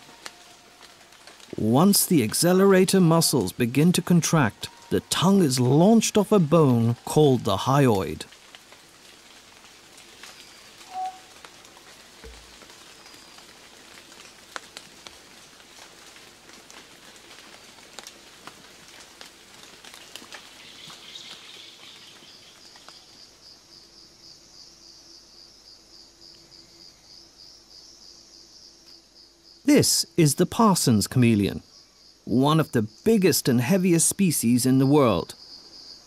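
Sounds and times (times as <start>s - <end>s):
faint hiss: 0.0s - 36.0s
insect trilling: 10.4s - 11.4s.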